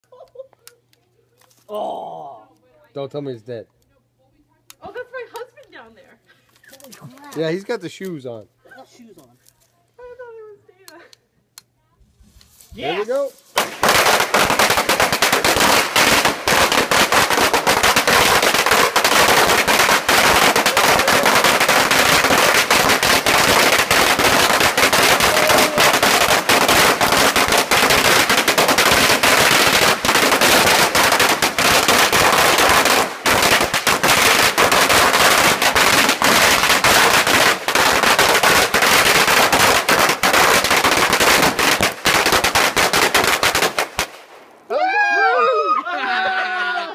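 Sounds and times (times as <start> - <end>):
firecrackers going off: 13.4 - 45.0.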